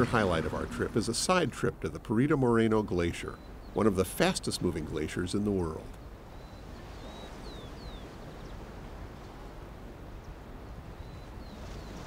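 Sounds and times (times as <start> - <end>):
faint bird chirps: 5.9 - 8.7, 10.2 - 12.0.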